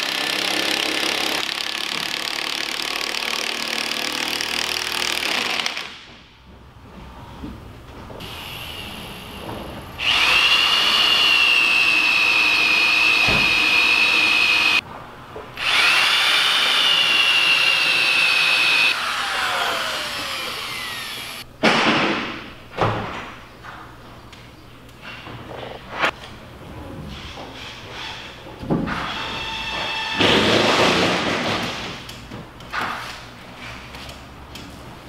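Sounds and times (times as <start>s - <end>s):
power drill whining: 10.0s - 14.8s, 15.6s - 21.4s.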